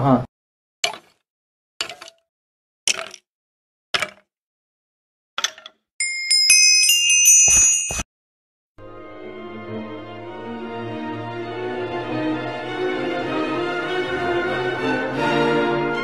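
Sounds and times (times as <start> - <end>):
chiming bell-like jingle: 6.0 - 8.0
orchestral music: 8.8 - 16.0.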